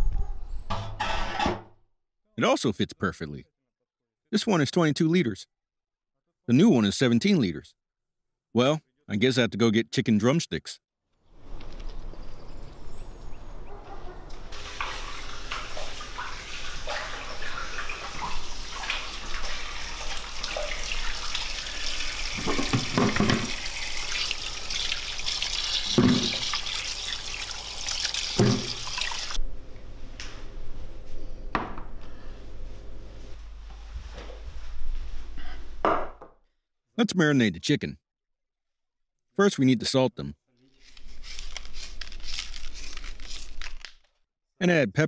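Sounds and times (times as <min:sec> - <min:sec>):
kitchen tap running into sink: 0:14.6 - 0:29.4.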